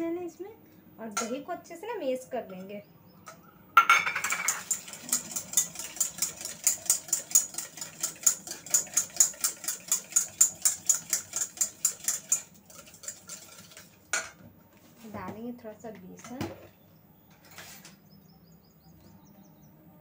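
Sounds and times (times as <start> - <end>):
whisk clicking in metal bowl: 4.2 - 14.0.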